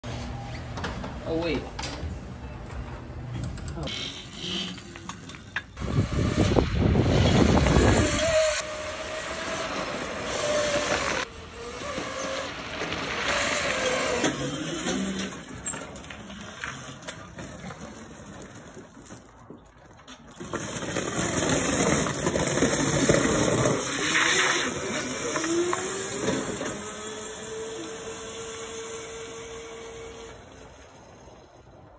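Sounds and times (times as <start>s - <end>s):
tyre noise on pavement: 3.8s - 31.9s
electric motor whine: 5.8s - 15.2s, 23.7s - 31.1s.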